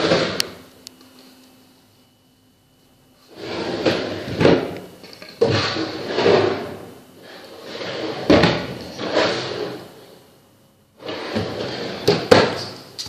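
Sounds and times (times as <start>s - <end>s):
drawers sliding on runners: 3.3s - 4.8s, 5.4s - 10.1s, 11.0s - 12.7s.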